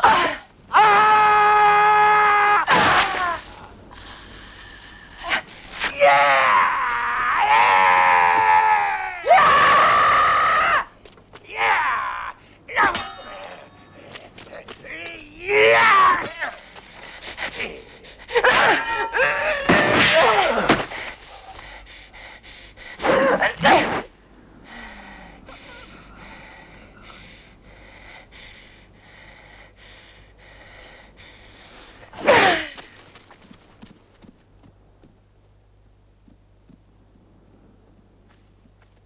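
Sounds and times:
heavy rhythmic breathing: 3.5 - 5.7, 16.4 - 18.5, 20.8 - 34.0
loud cry: 5.9 - 10.9, 11.5 - 13.6, 14.9 - 16.6, 18.4 - 20.8.

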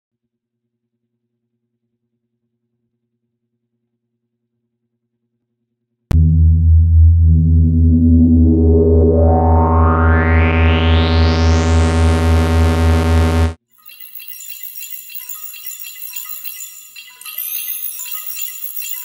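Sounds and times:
bass-heavy synth chord: 6.1 - 13.6.

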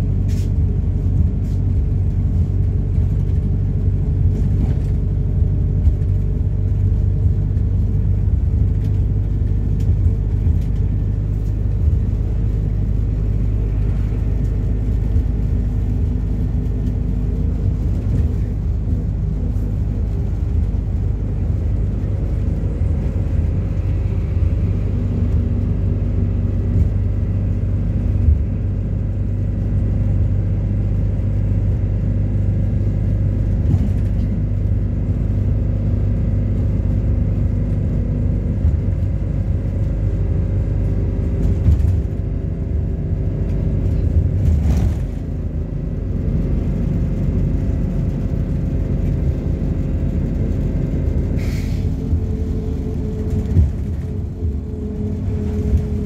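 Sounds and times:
bus engine rumble: 0.0 - 56.0.

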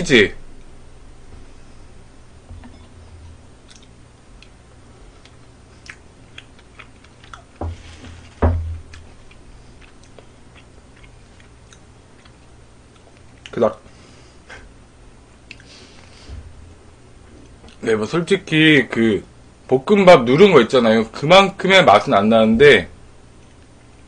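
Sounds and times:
person chewing: 3.6 - 4.6, 5.2 - 7.6, 8.9 - 13.5, 15.5 - 15.8.

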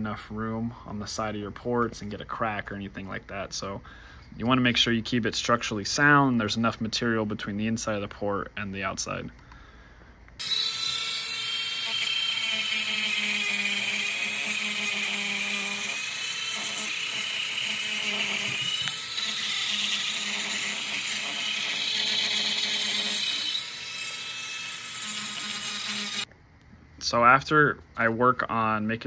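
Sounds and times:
rotary grinder whining: 10.4 - 26.3.

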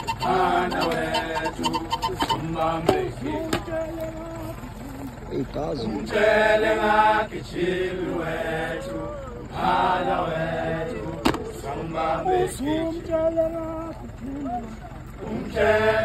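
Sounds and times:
group of voices chanting: 0.0 - 4.0, 6.0 - 12.9, 15.2 - 16.0.

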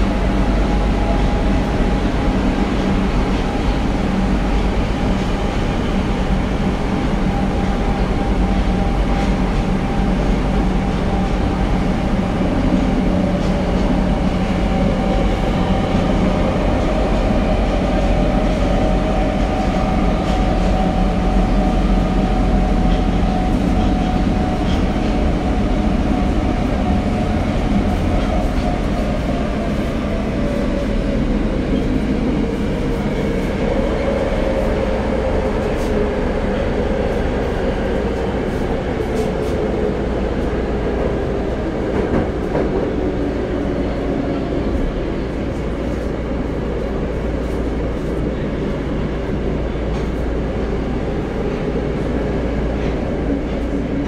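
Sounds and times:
subway wheels rumbling on rail: 0.0 - 54.0.

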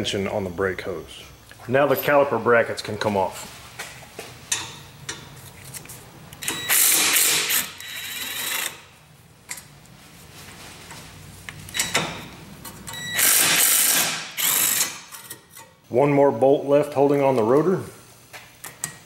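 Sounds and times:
impact wrench rattling: 13.2 - 15.4.

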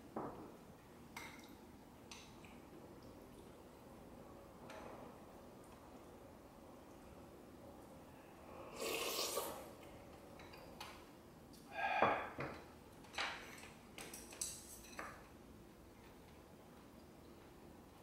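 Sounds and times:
slurping soup from spoon: 8.7 - 9.7.

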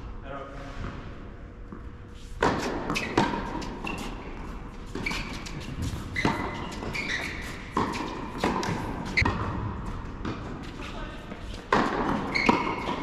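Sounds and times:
shoes squeaking on court: 1.7 - 13.0
tennis racket hitting ball: 2.4 - 10.7, 11.5 - 13.0
ball bouncing: 4.9 - 10.7, 11.6 - 13.0.

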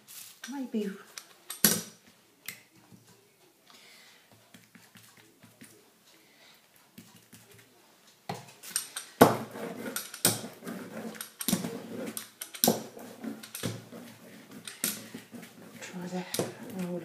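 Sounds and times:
rubber brayer rolling through paint: 9.2 - 17.0.

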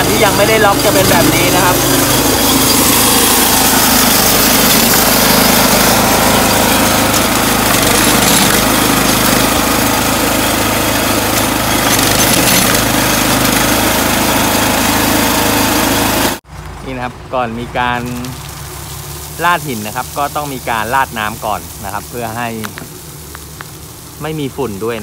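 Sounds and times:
machine motor humming: 0.0 - 16.4.

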